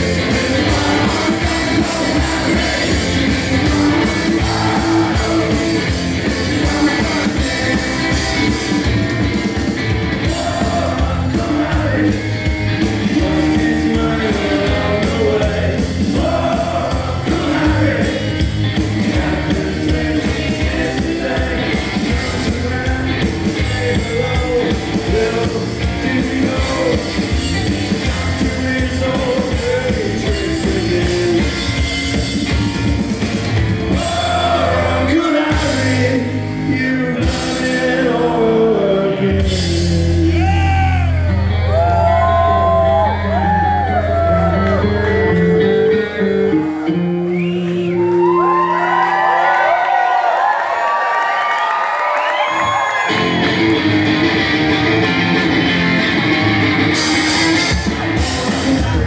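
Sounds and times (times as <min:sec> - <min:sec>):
male lead vocal: 0:00.0 - 0:08.9, 0:10.2 - 0:31.9, 0:33.9 - 0:41.4, 0:58.1 - 0:59.0
electric guitar: 0:00.0 - 0:49.6, 0:52.4 - 0:59.0
drums: 0:00.0 - 0:50.5, 0:52.2 - 0:59.0.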